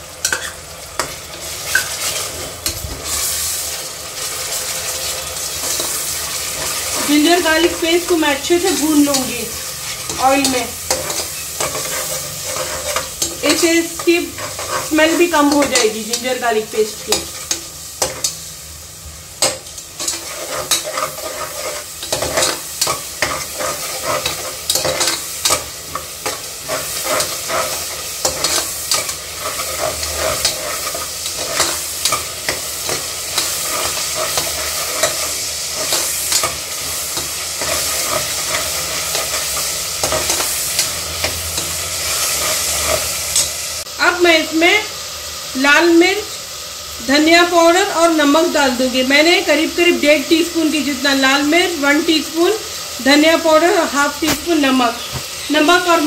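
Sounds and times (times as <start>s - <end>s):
paste sizzling in hot oil: 0.0s - 56.0s
metal spatula scraping pot: 0.2s - 2.3s, 8.7s - 16.3s, 19.4s - 36.9s.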